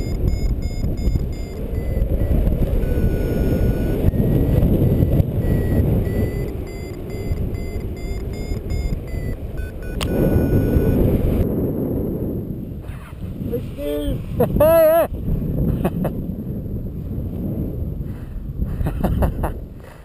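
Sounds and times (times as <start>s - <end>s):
variometer beeping: 0.0s - 11.5s
wind rushing over microphone: 0.0s - 20.0s.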